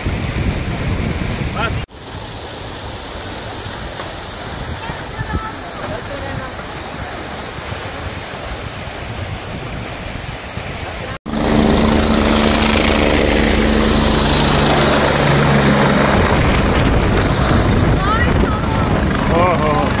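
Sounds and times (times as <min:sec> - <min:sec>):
river rushing: 0:01.0 - 0:20.0
helicopter flying low: 0:11.3 - 0:20.0.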